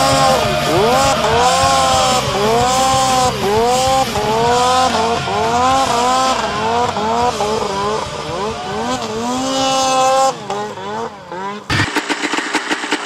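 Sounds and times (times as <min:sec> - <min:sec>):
snowmobile engine revving: 0:00.0 - 0:13.0.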